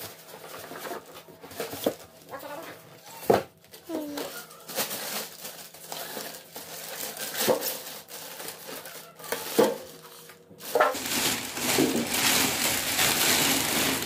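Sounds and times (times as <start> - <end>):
plastic bag crinkling: 3.7 - 14.0
foam blocks scraping and knocking: 10.7 - 14.0.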